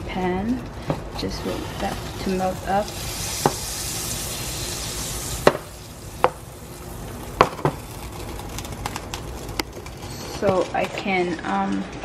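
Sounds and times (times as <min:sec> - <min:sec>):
butter sizzling in a frying pan: 0:01.3 - 0:10.4.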